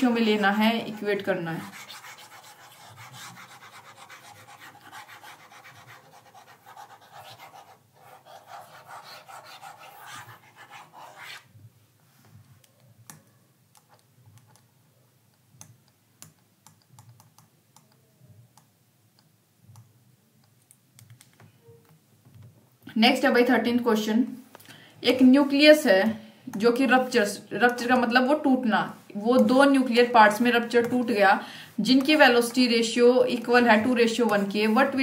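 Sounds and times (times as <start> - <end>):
faint rustling and scratching: 33.2 - 35.0.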